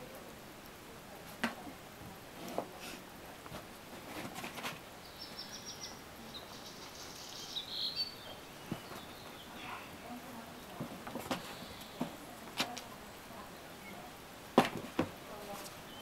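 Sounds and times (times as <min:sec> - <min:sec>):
bird chirping: 0:05.0 - 0:12.3, 0:15.7 - 0:16.0.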